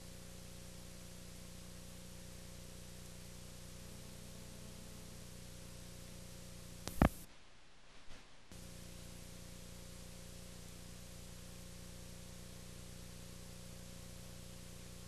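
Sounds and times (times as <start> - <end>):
low electrical hum: 0.0 - 15.0
tape hiss: 0.0 - 15.0
loud tape pop: 6.8 - 7.3.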